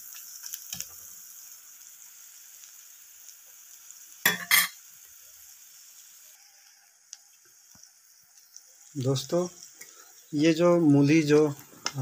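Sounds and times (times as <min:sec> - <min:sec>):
onions sizzling in oil: 0:00.0 - 0:12.0
spoon knocking metal pan: 0:04.3 - 0:04.8.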